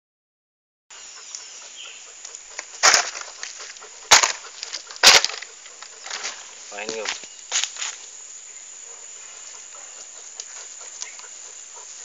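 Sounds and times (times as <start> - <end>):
bear sniffing: 1.1 - 6.7, 8.8 - 12.0.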